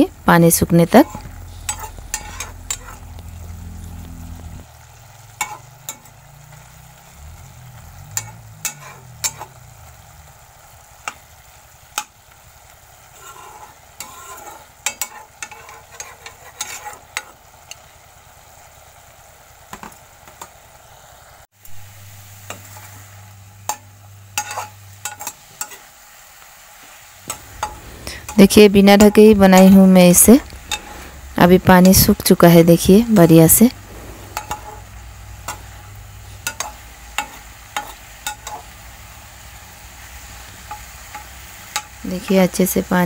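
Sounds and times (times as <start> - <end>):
low hum: 0.0 - 11.6
greens sizzling: 0.0 - 43.0
spatula scraping a wok: 1.0 - 17.8, 22.0 - 26.1, 26.8 - 29.8, 30.4 - 32.0, 33.7 - 42.4.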